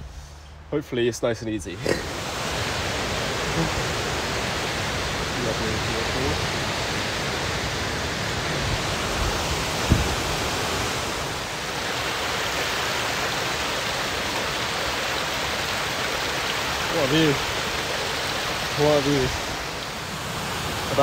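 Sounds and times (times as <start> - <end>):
stream rushing over rocks: 1.8 - 21.0
brief thump: 9.9 - 10.1.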